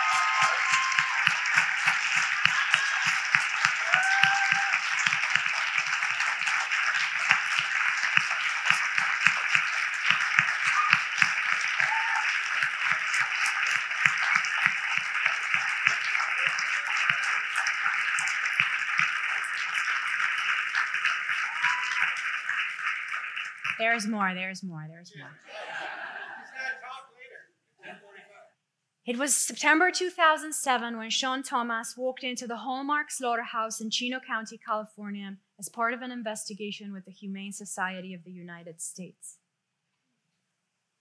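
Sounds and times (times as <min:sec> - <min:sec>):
crowd calling out: 0:00.0 - 0:07.0, 0:07.8 - 0:18.9, 0:21.3 - 0:22.3
audience applauding: 0:00.0 - 0:24.1.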